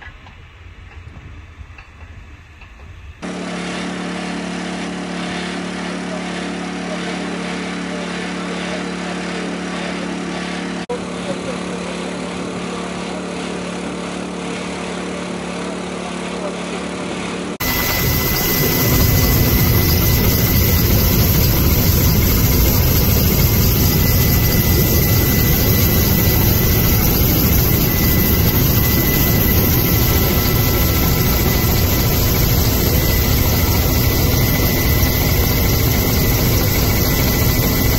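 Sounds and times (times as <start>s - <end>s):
helicopter engine and rotor: 3.2s - 37.9s
thin steady whine: 17.6s - 37.9s.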